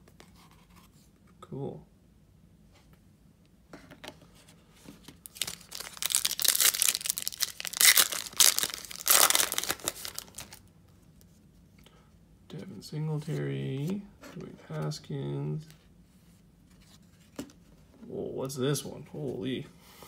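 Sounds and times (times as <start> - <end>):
foil wrapper crinkling: 5.2 - 10.6.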